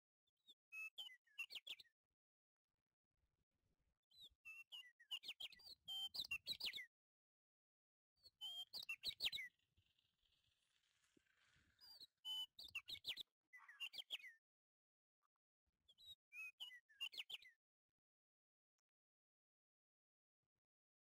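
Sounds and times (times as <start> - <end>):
small bird chirping: 0.4 - 1.9, 4.1 - 6.9, 8.2 - 14.4, 15.9 - 17.6.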